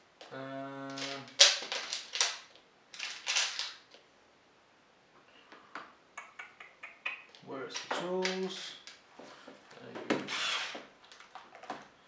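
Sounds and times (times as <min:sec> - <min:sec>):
small metal parts clinking: 0:00.9 - 0:03.8.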